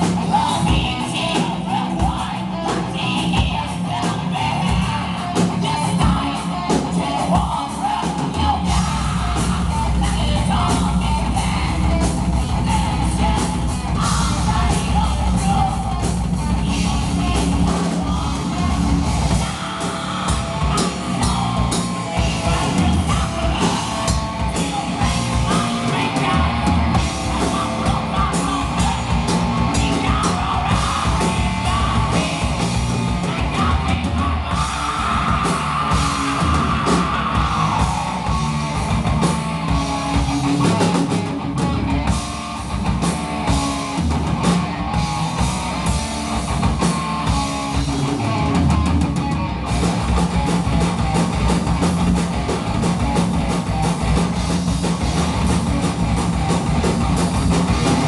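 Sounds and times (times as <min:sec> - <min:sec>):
person singing: 0:00.0 - 0:42.2
bass guitar: 0:00.0 - 0:58.0
drum kit: 0:00.0 - 0:58.0
electric guitar: 0:00.0 - 0:58.0.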